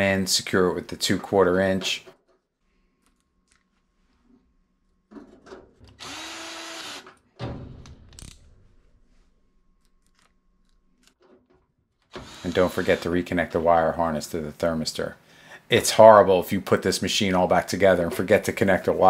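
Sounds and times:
cordless drill driving screw: 0:05.9 - 0:07.2, 0:12.1 - 0:13.1
clunk: 0:07.4 - 0:08.8.

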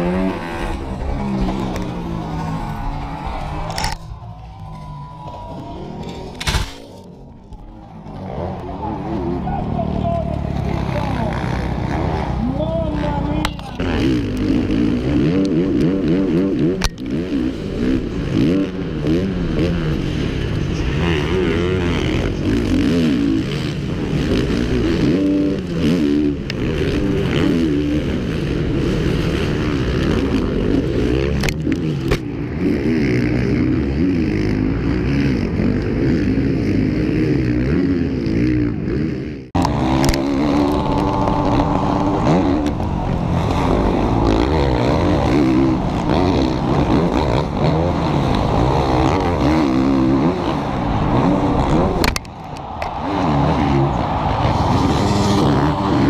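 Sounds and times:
motocross engine revving: 0:00.0 - 0:04.4, 0:05.5 - 0:56.0.

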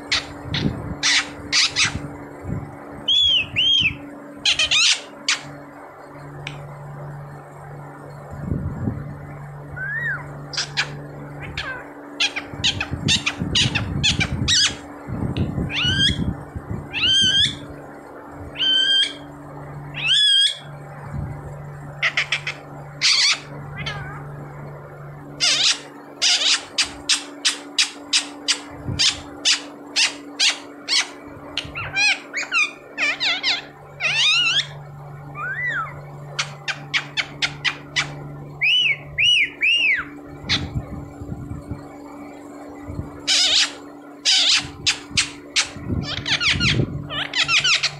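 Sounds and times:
parakeet squawking: 0:00.0 - 0:02.2, 0:03.1 - 0:05.6, 0:09.7 - 0:14.9, 0:15.7 - 0:16.3, 0:16.9 - 0:17.7, 0:18.5 - 0:19.3, 0:19.9 - 0:20.7, 0:22.0 - 0:24.4, 0:25.4 - 0:40.8, 0:43.2 - 0:47.9.

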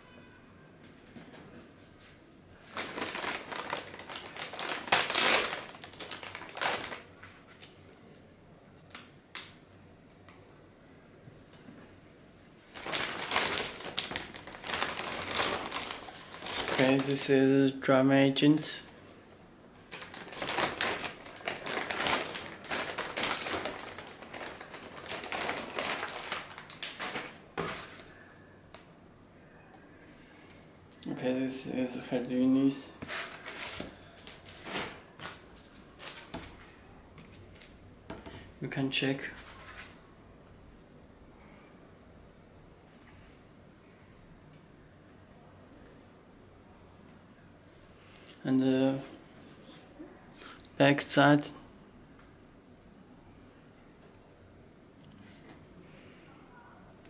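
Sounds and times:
plastic bag crinkling: 0:02.6 - 0:07.7, 0:12.7 - 0:17.4, 0:19.9 - 0:28.1.

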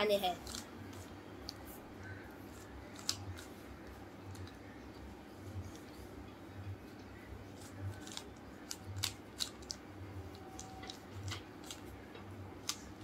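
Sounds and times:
puzzle cube layers clicking: 0:07.6 - 0:09.8.

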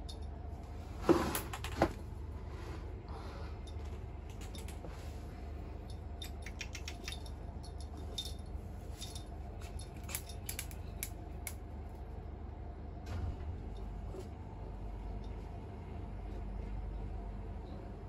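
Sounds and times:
toy ball clicking on floor: 0:06.2 - 0:07.3.

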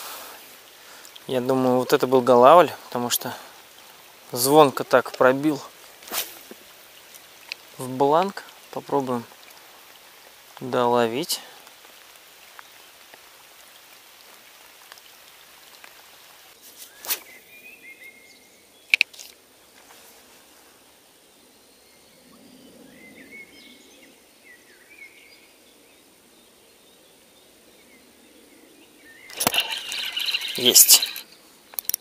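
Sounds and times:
faint bird chirps: 0:21.3 - 0:32.0
fishing reel clicks: 0:29.3 - 0:31.2.

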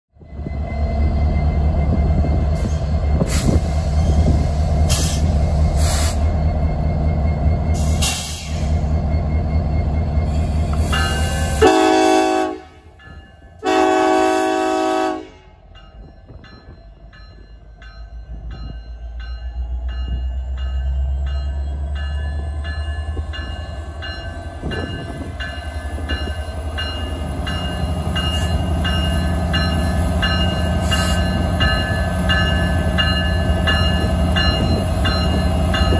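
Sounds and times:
locomotive engine rumbling: 0:00.2 - 0:35.9
locomotive horn blasts: 0:11.4 - 0:12.9, 0:13.6 - 0:15.6.

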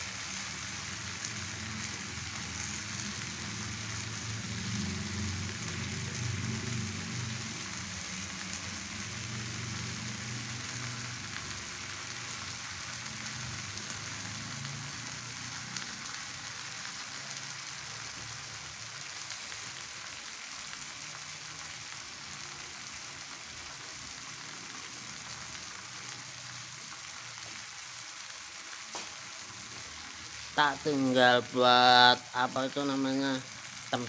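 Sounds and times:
fish sizzling on a grill: 0:00.0 - 0:34.0
faint crackle: 0:15.6 - 0:30.5.

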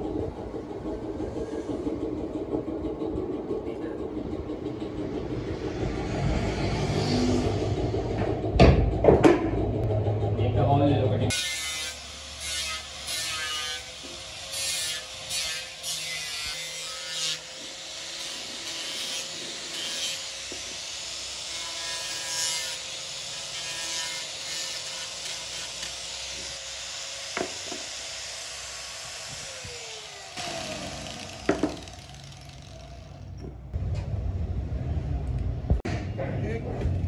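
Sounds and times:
angle grinder grinding fibreglass: 0:11.3 - 0:33.4.

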